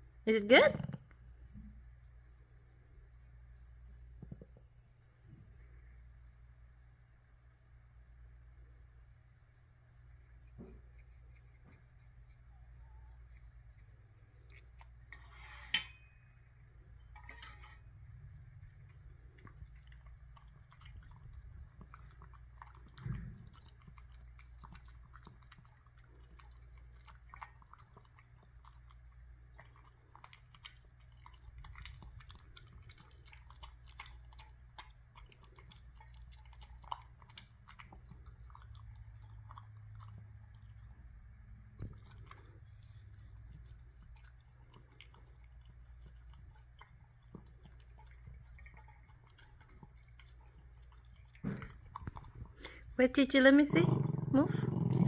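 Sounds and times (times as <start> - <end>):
dog munching wetly: 18.8 - 55.0.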